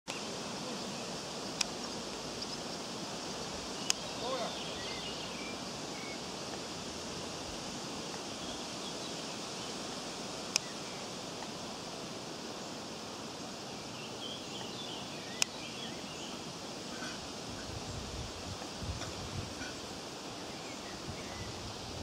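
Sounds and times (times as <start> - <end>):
outdoor background hiss: 0.1 - 22.0
high chirping bird calls: 2.3 - 6.3
sharp clicks: 3.8 - 4.0.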